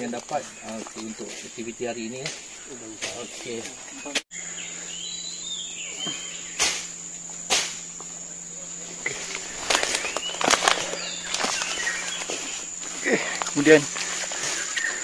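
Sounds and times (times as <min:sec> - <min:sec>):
footsteps crackling through undergrowth: 0:00.0 - 0:03.7, 0:08.8 - 0:15.0
high-pitched insect drone: 0:00.0 - 0:15.0
twigs snapping underfoot: 0:09.0 - 0:14.9.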